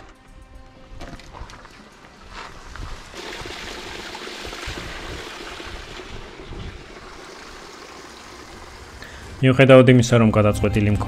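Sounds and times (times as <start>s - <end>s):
stream water rushing: 3.2s - 9.4s.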